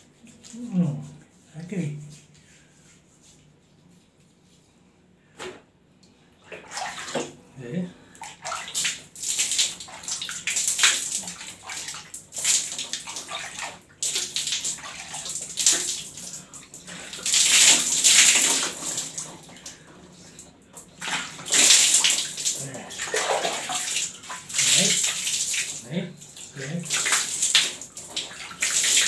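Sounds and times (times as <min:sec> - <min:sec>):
water splashing and dripping: 0:06.5 - 0:07.4, 0:08.1 - 0:29.0.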